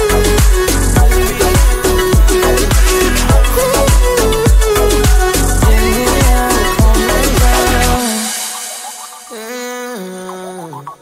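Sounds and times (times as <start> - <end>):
kick drum: 0.0 - 7.8
bass line: 0.0 - 8.3
electronic beat music: 0.0 - 11.0.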